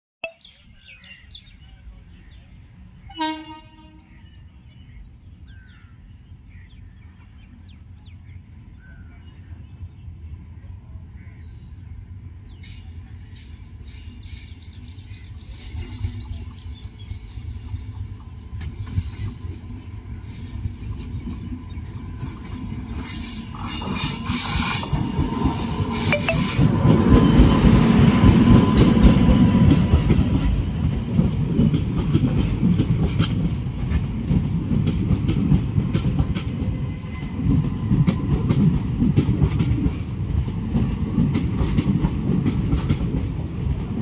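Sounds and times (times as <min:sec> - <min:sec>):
train horn blast: 0:03.1 - 0:04.3
train wheels clattering on rails: 0:12.5 - 0:44.0.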